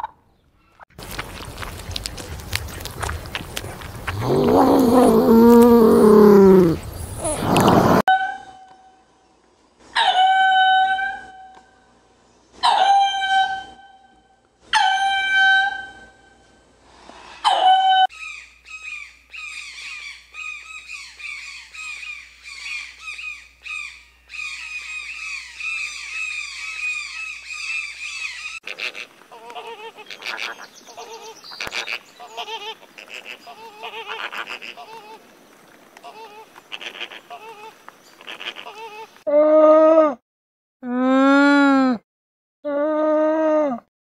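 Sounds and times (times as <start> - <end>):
lemur calls: 17.6 - 35.2, 36.0 - 39.2.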